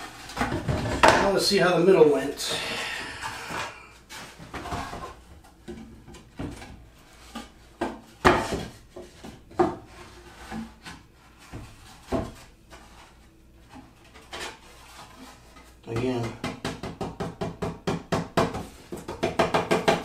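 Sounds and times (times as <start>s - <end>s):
wood rubbing: 2.4s - 4.0s.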